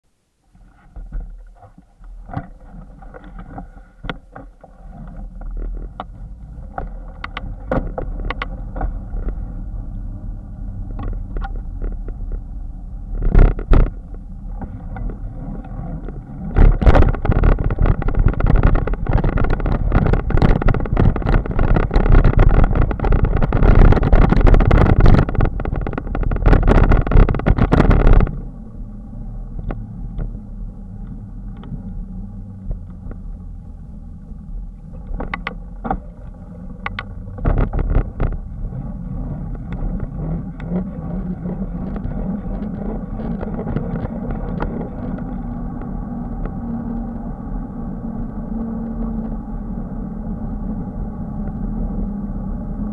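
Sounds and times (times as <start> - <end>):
wind rushing over microphone: 5.9 - 33.3.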